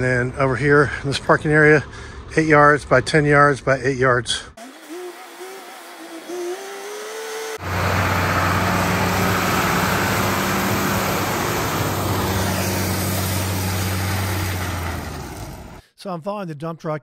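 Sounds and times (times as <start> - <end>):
diesel engine humming: 0.0 - 15.8
rising engine whine: 5.2 - 15.8
gravel pouring: 7.6 - 15.8.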